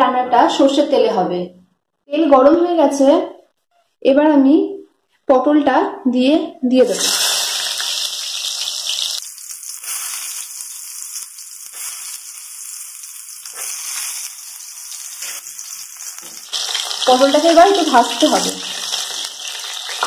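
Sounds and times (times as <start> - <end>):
vegetables sizzling in hot oil: 6.8 - 20.0.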